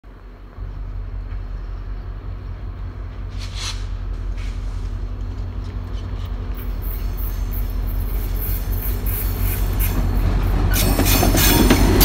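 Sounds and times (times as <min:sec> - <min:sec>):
diesel locomotive rumble: 0:00.1 - 0:12.0
short hiss: 0:03.3 - 0:05.0.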